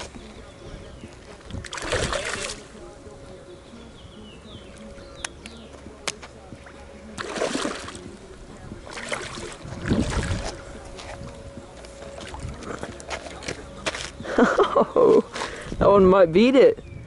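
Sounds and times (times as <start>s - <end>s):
fish splashing in water: 1.2s - 2.8s, 7.2s - 8.2s, 8.8s - 10.6s.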